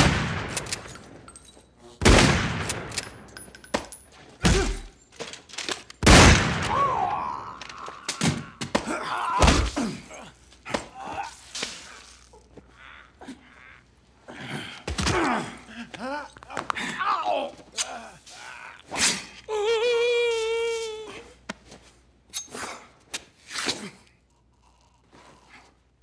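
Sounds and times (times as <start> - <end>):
heavy fight impacts: 4.4 - 5.0
men grunting and groaning: 4.4 - 5.0, 6.7 - 21.2.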